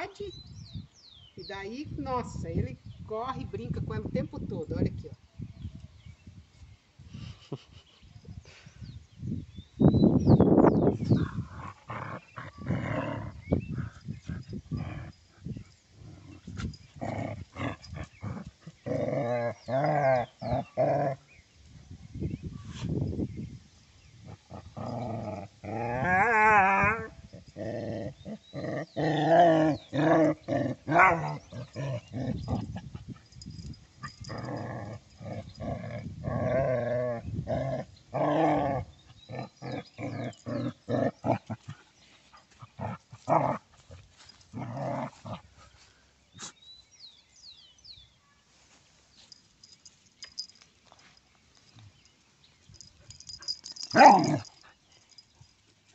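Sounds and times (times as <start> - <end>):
dogs play growling: 11.0 - 21.4, 24.2 - 45.9, 49.6 - 52.1, 52.7 - 55.4.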